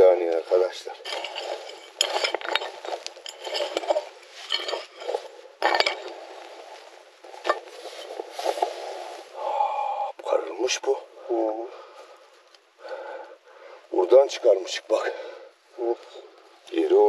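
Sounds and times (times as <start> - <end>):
metal tool scraping stony soil: 0.0 - 9.4
tool clinking on stones: 0.2 - 8.6.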